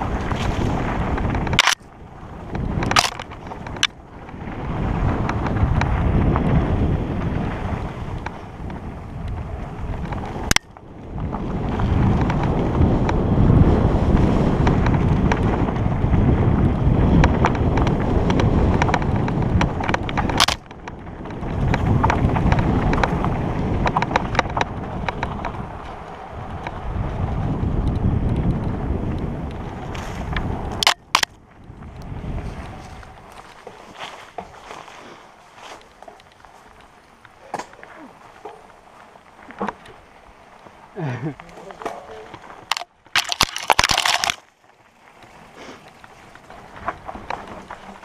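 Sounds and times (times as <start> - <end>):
bike rattling clicks: 0.0 - 48.0
bike tyre rumble: 0.0 - 48.0
wind buffeting microphone: 0.0 - 48.0.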